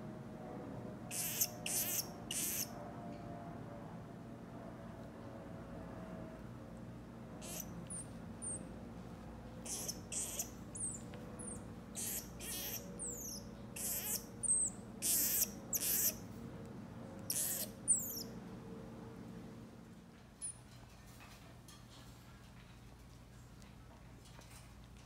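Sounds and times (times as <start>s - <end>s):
marmoset high-pitched calls: 1.1s - 2.8s, 7.4s - 8.7s, 9.6s - 16.2s, 17.3s - 18.3s.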